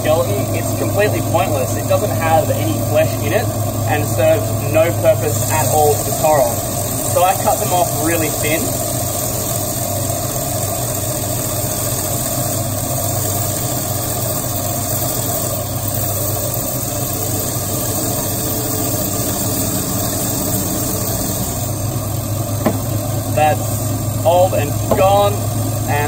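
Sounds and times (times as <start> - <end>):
band saw cutting coral: 0.0 - 26.0.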